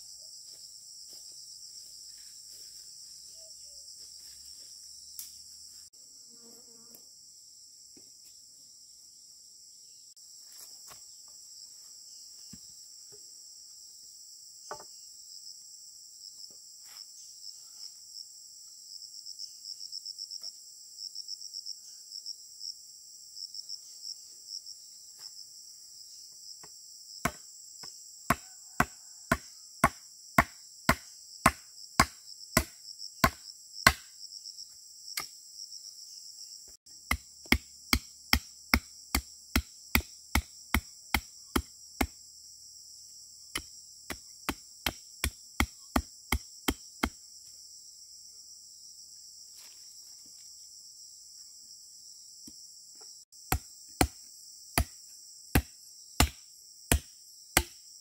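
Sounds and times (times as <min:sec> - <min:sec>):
insects chirring: 0:00.0 - 0:58.0
tool striking sharp knocks: 0:37.1 - 0:42.1, 0:55.6 - 0:57.8.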